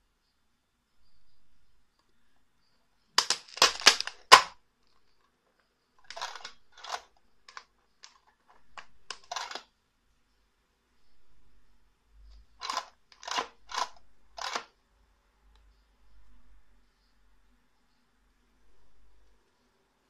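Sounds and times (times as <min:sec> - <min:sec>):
capsules rattling: 0:03.2 - 0:04.5, 0:06.0 - 0:09.7, 0:12.6 - 0:14.7
plastic plate clicking: 0:03.2 - 0:04.5, 0:06.1 - 0:09.6.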